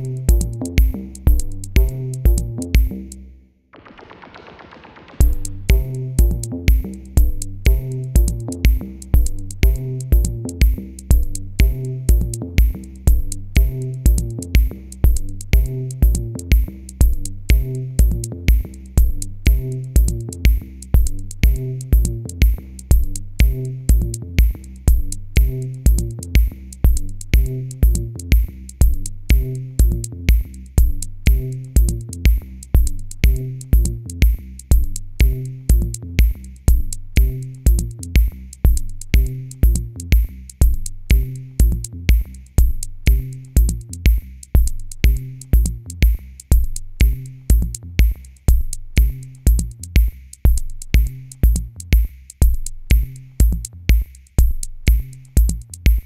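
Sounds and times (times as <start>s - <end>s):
electronic music with drum-machine beat: 0.0s - 3.2s, 3.8s - 56.0s.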